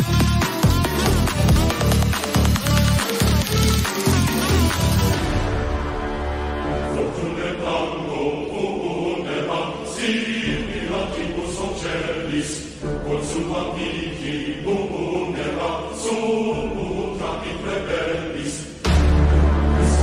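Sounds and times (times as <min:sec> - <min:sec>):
pop song remix with singing: 0:06.7 - 0:20.0.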